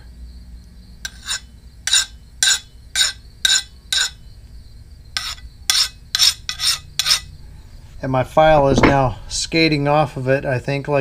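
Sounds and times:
file scraping on steel: 1.0s - 4.2s, 5.2s - 7.3s.

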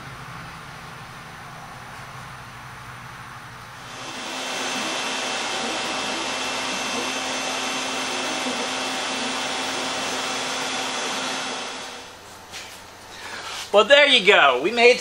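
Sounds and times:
power tool motor whirring: 3.8s - 12.2s.

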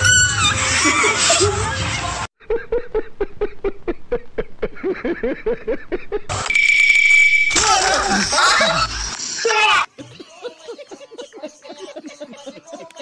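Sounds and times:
man laughing heartily: 2.4s - 6.3s, 10.0s - 13.0s
high-pitched beep: 6.5s - 7.6s
shrieking voices: 7.5s - 9.9s.

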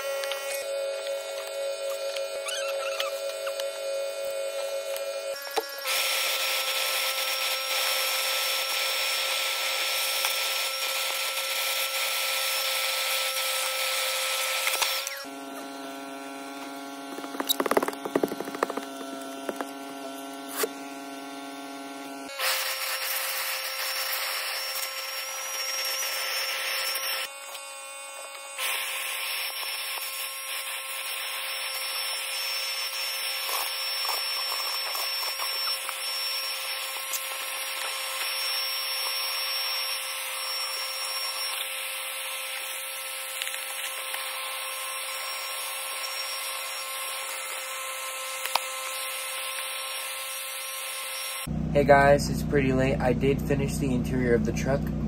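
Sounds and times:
shop vacuum whining: 0.0s - 55.0s.

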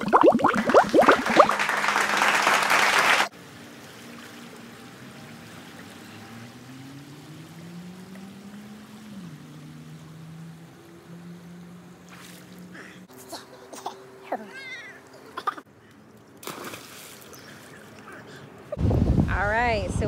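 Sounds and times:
water splashing and rushing: 0.0s - 13.1s, 16.4s - 18.1s.

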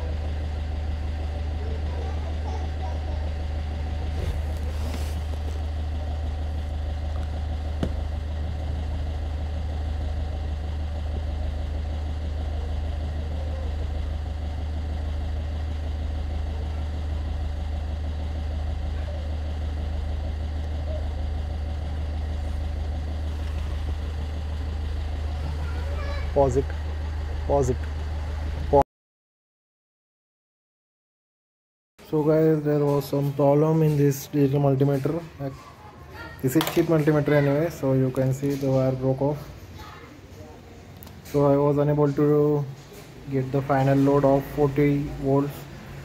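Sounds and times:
subwoofer low bass tone: 3.1s - 25.6s.

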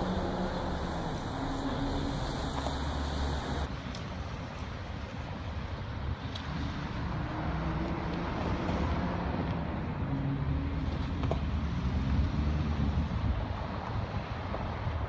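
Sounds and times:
car engine and road rumble: 0.0s - 3.8s.

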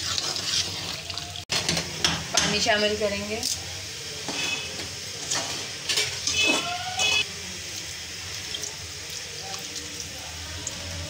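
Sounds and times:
water pouring into pot: 0.0s - 1.7s, 7.0s - 11.0s.

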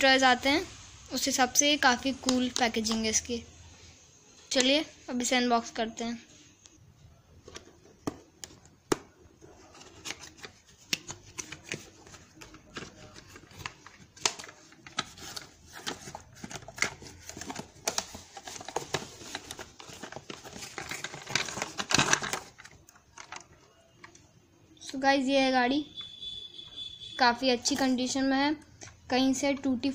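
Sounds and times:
cardboard and plastic crackling: 7.5s - 24.3s.

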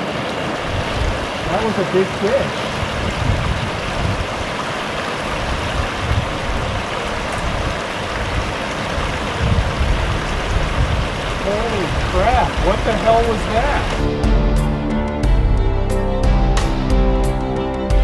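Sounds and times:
floodwater rushing over dam: 0.0s - 14.4s.

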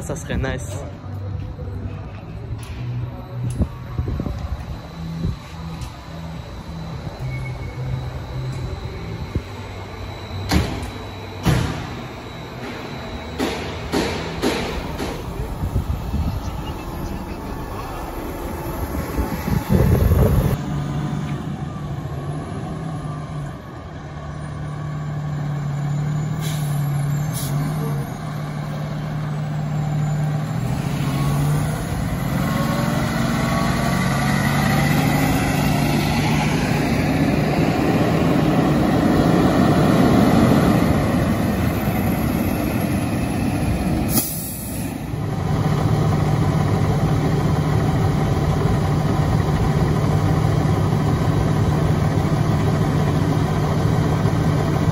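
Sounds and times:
fire truck driving past: 0.8s - 54.9s
fire engine idling: 7.8s - 54.9s.

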